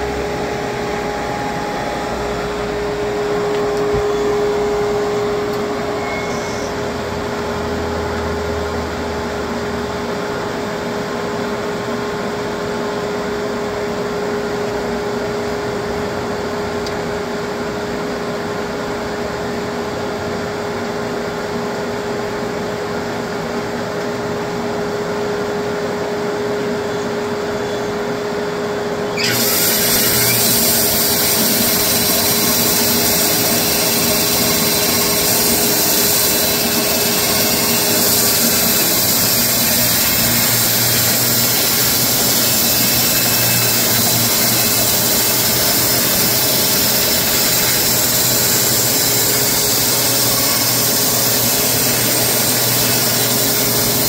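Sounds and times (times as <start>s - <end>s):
sawmill motor humming: 0.0s - 8.2s, 29.1s - 54.0s
band saw blade cutting log: 29.2s - 54.0s.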